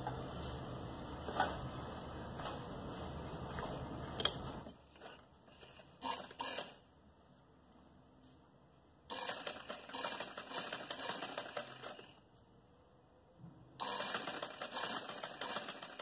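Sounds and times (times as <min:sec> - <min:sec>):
sewing machine stitching: 0:04.9 - 0:06.8, 0:09.1 - 0:12.1, 0:13.8 - 0:16.0.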